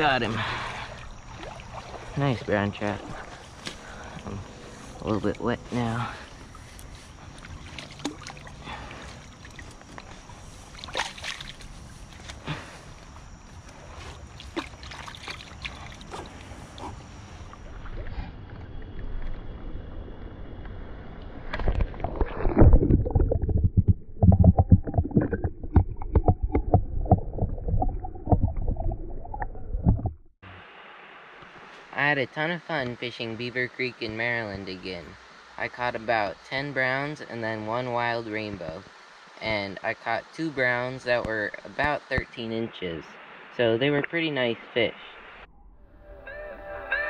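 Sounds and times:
creek water running: 0:00.0 - 0:19.0, 0:30.6 - 0:45.2
underwater gurgling and sloshing: 0:00.0 - 0:30.4
splashes and knocks in net: 0:10.7 - 0:12.4.

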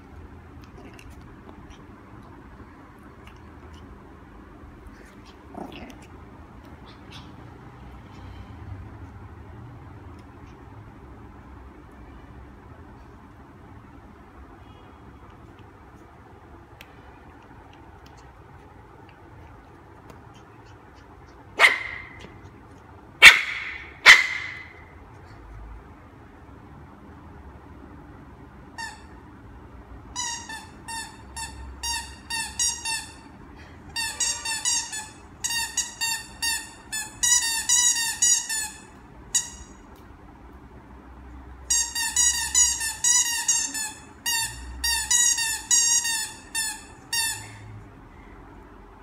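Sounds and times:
squeaky toy squeaking: 0:28.7 - 0:29.2, 0:30.1 - 0:33.3, 0:33.9 - 0:39.8, 0:41.7 - 0:47.6.

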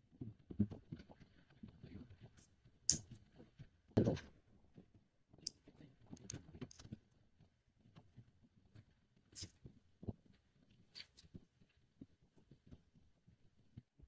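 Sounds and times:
soft rustling and clicking: 0:04.7 - 0:14.0.

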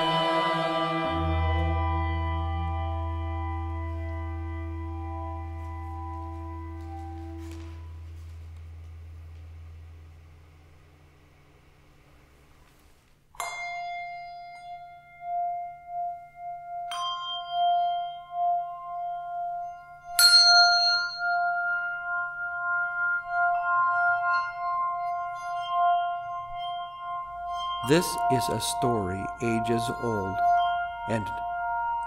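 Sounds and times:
handbells ringing: 0:13.4 - 0:32.0.

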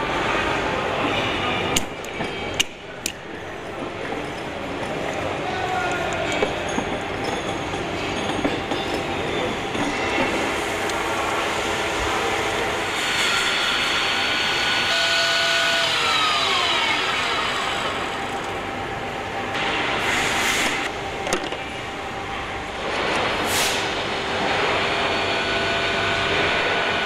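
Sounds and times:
clatter and hum of machinery: 0:00.0 - 0:27.0.

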